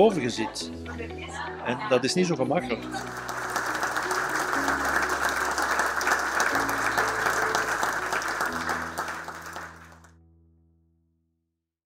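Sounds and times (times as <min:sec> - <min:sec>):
soft background music chords: 0:00.0 - 0:10.4
audience applauding: 0:02.9 - 0:10.1.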